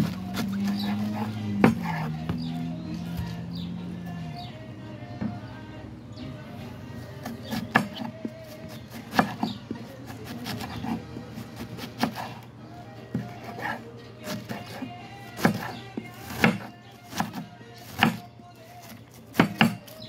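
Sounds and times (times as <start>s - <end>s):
knife chopping cabbage on board: 0.0s - 2.4s, 7.2s - 12.4s, 13.1s - 20.0s.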